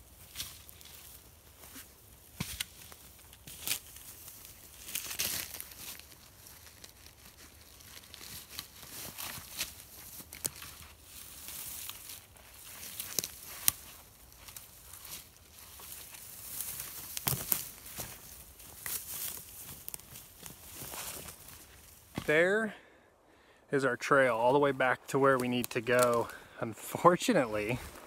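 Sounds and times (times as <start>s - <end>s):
branches crackling and rustling: 0.0s - 28.0s
branches snapping sharply: 16.7s - 18.0s.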